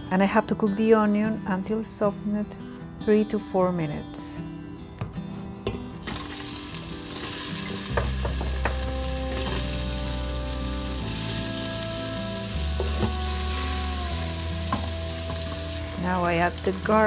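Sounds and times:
onion sizzling in hot oil: 0:06.0 - 0:17.0
wooden spoon knocking on cutting board: 0:08.0 - 0:08.9.

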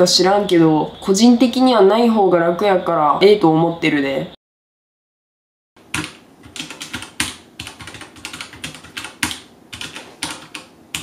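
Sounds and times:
mechanical keyboard typing: 0:05.9 - 0:11.0.

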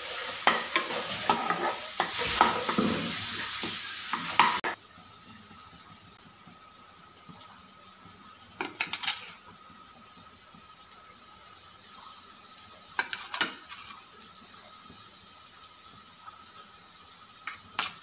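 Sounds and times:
spatula scraping a pan: 0:00.0 - 0:04.7
food sizzling: 0:00.0 - 0:18.0
food pieces dropped into pan: 0:08.6 - 0:09.3.

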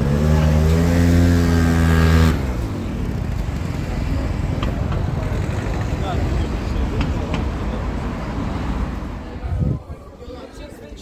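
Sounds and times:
motor scooter engine running: 0:00.0 - 0:06.0
street noise: 0:00.0 - 0:11.0.

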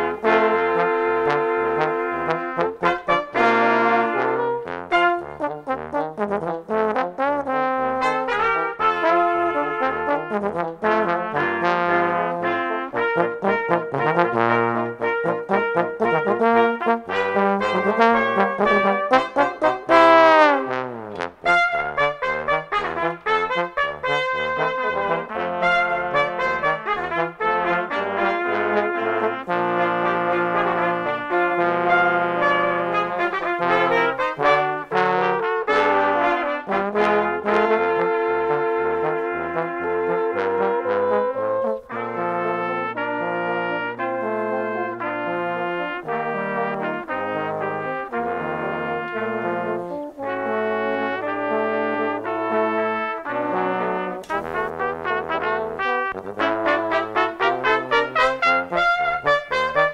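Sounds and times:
brass ensemble playing: 0:00.0 - 0:59.9.

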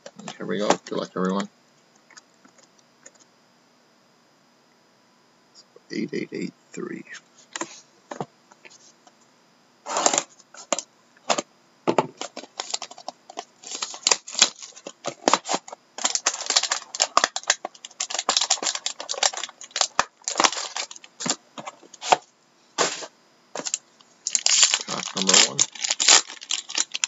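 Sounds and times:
cardboard box tearing and rustling: 0:24.3 - 0:27.0.

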